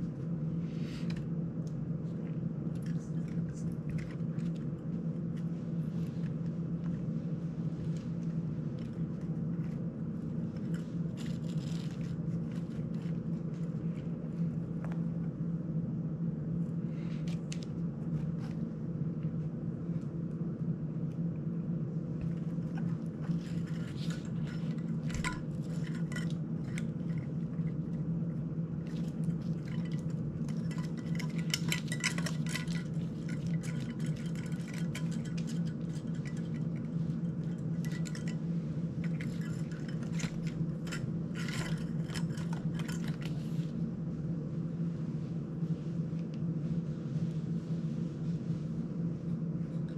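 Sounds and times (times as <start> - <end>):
steady low hum: 0.0 - 49.9
small metal parts clinking: 22.8 - 27.8, 28.9 - 38.4, 39.0 - 43.4.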